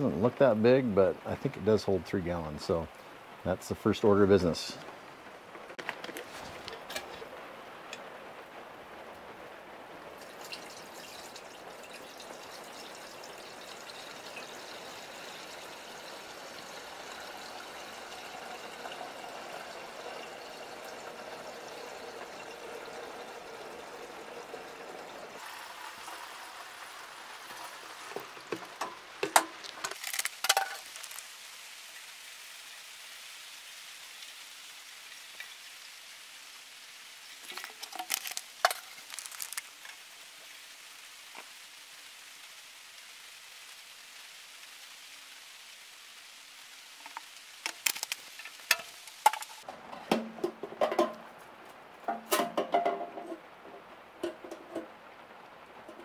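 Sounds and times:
liquid pouring into a tank: 10.2s - 31.2s, 37.4s - 39.9s.

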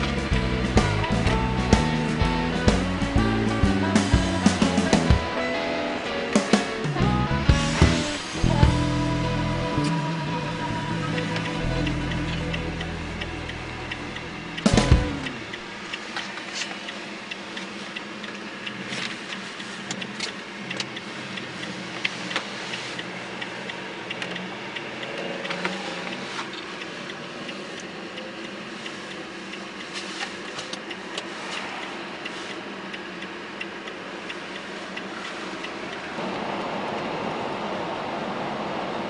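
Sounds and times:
road and tyre noise: 0.0s - 39.0s
sharp clicks and ticks: 6.3s - 36.3s.

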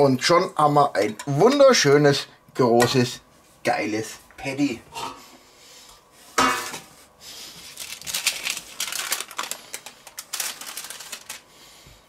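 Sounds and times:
baking paper crinkling: 7.3s - 11.9s.

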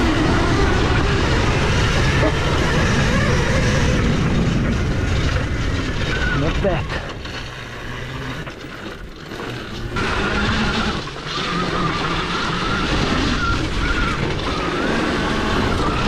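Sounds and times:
electric motor whine: 0.0s - 6.7s, 7.4s - 16.0s
wind noise: 0.0s - 16.0s.

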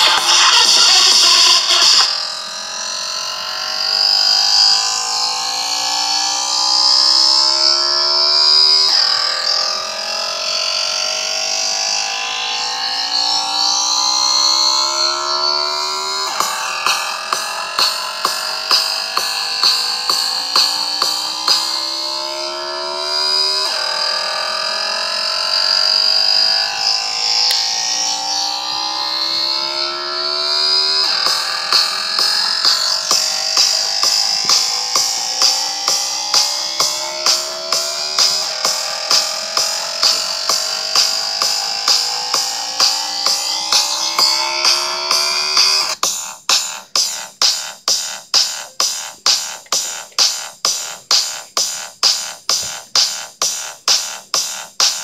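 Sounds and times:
rising synthesizer tone: 0.0s - 46.1s
sharp percussive beats: 31.0s - 55.0s.

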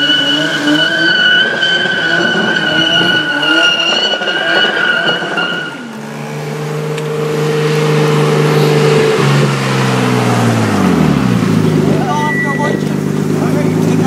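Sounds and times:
tyre squeal: 0.0s - 7.0s, 12.0s - 13.0s
car engine revving: 0.0s - 14.0s.

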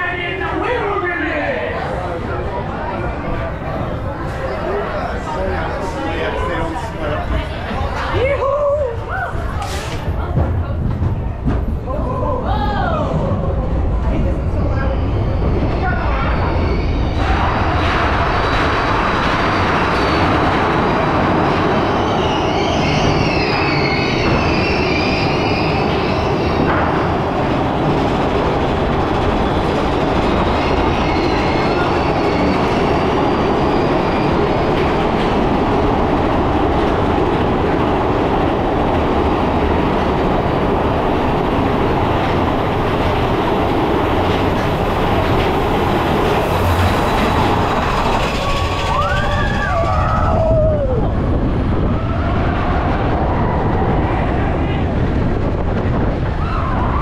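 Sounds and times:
roller coaster wheels rumbling: 0.0s - 57.0s
high wheel squeal: 14.5s - 18.5s, 19.4s - 26.7s, 29.2s - 34.8s, 45.9s - 50.6s.

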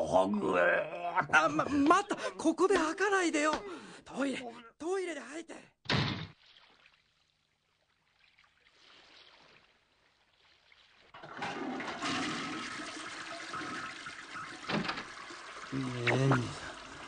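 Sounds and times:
toilet flushing: 11.1s - 17.0s.

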